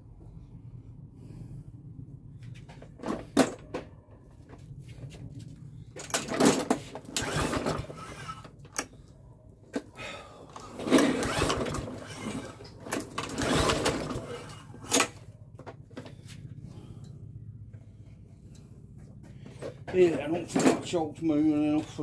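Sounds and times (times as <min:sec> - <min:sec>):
steady low hum: 0:00.0 - 0:22.0
lawnmower engine rough bursts: 0:06.0 - 0:08.9, 0:10.0 - 0:15.3.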